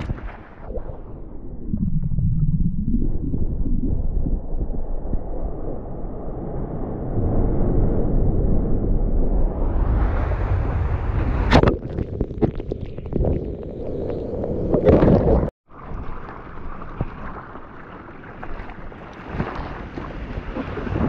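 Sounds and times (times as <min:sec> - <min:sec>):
water sloshing: 0:00.0 - 0:00.7, 0:11.5 - 0:21.0
water splashing on camera: 0:00.0 - 0:01.1, 0:11.3 - 0:21.0
wave breaking: 0:00.0 - 0:21.0.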